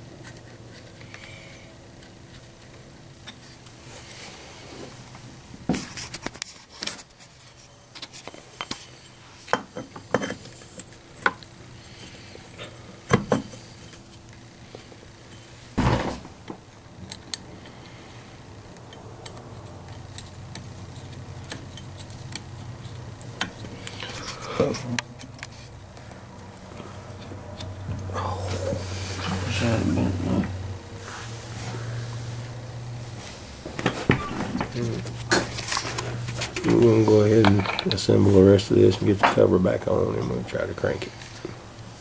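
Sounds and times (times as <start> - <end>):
steady low hum: 0.0 - 42.0
heavy knock: 15.8 - 16.4
metal parts and tools clinking: 35.3 - 38.1.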